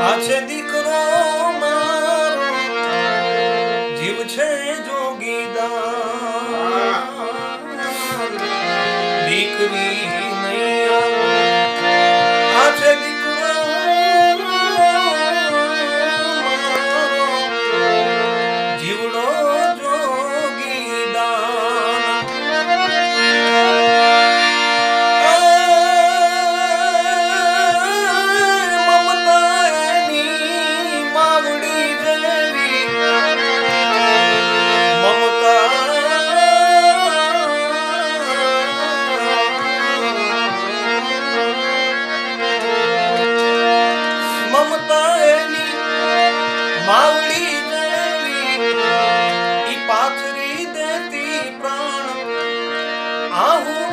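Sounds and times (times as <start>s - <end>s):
man singing folk song: 0.0s - 2.5s, 3.9s - 8.4s, 9.2s - 11.2s, 12.5s - 17.4s, 18.8s - 22.2s, 25.2s - 32.9s, 34.4s - 40.1s, 44.2s - 45.8s, 46.8s - 48.6s, 49.6s - 52.4s, 53.3s - 53.9s
harmonium melody with drone: 0.0s - 53.9s.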